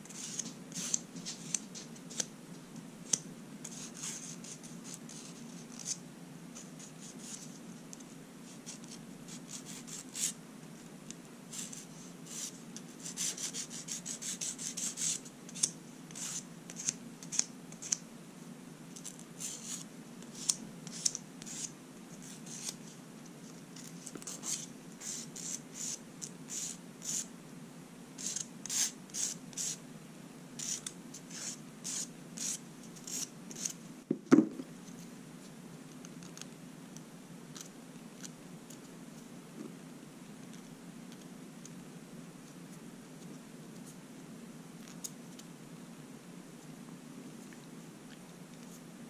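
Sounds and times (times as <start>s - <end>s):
nail file rubbing fingernails: 30.6s - 33.8s.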